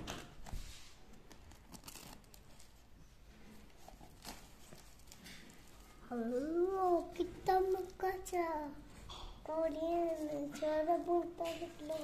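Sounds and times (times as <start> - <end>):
cardboard parcel rustling and scraping: 0.0 - 7.8
packing tape peeling: 1.3 - 2.8.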